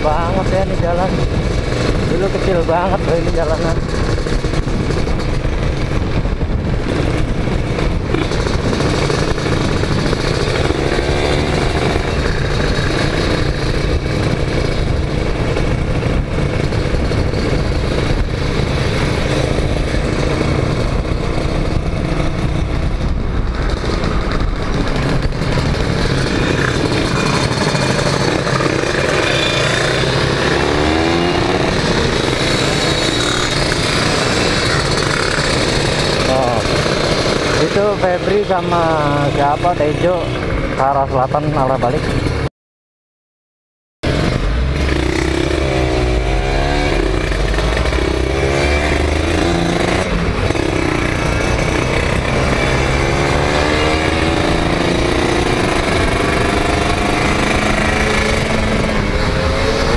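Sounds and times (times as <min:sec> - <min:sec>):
wind on microphone: 0:00.0 - 0:37.7
motorcycle engine running: 0:00.0 - 0:42.5, 0:44.0 - 0:59.9
other motorcycles nearby: 0:00.0 - 0:42.5, 0:44.0 - 0:59.9.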